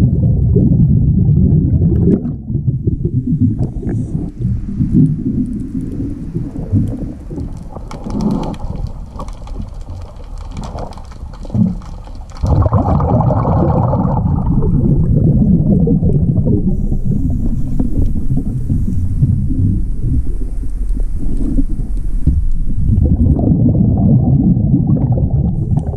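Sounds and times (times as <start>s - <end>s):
underwater rumble and bubbles: 0.0s - 25.9s
fine crackling clicks: 3.6s - 13.0s, 16.0s - 23.1s.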